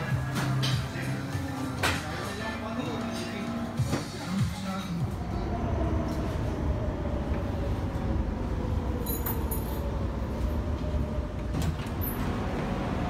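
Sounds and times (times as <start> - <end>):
metro train rumble: 0.0 - 13.0.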